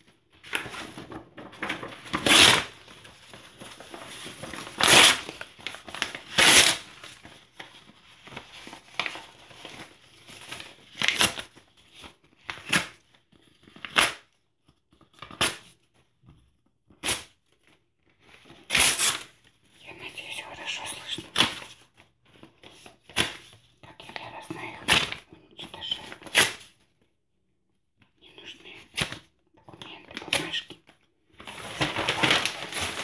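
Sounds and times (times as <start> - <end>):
paper rustling: 0.0 - 16.0, 31.3 - 33.0
paper tearing: 1.8 - 2.8, 3.7 - 7.2, 18.6 - 19.3, 26.1 - 26.7.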